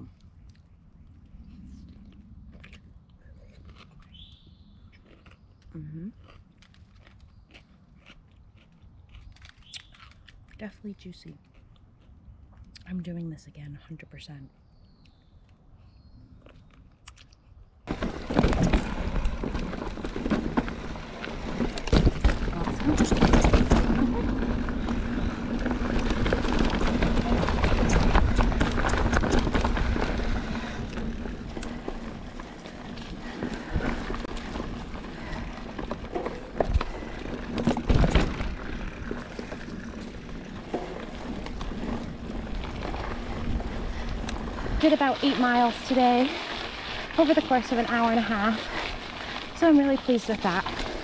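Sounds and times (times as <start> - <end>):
person chewing pickle: 1.8 - 10.6, 11.3 - 12.9, 16.4 - 17.6
bike tyres on dirt trail: 4.1 - 4.9, 17.8 - 51.0
wind on microphone: 17.9 - 49.6
bike knocks and rattles: 17.9 - 51.0.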